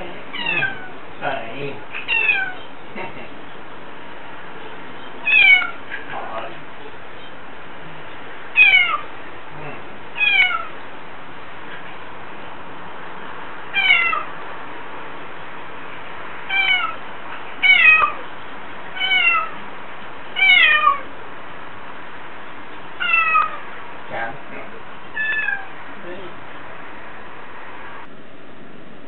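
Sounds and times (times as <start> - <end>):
cat meowing: 0.3 - 1.0, 1.9 - 2.7, 5.2 - 6.1, 8.5 - 9.1, 10.2 - 10.8, 13.7 - 14.3, 16.5 - 18.3, 18.9 - 19.6, 20.4 - 21.1, 23.0 - 23.7, 25.1 - 25.8.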